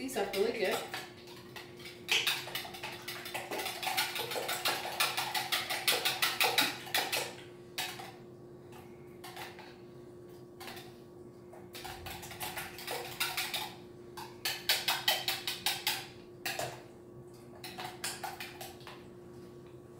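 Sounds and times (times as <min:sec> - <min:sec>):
whisk beating eggs in bowl: 0:00.0 - 0:08.2, 0:11.6 - 0:16.8, 0:17.5 - 0:19.1.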